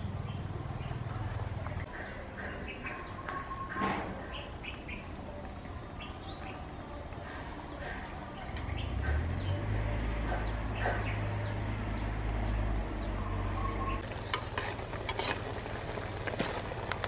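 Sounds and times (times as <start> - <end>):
soup bubbling in a pot: 14.0 - 17.0.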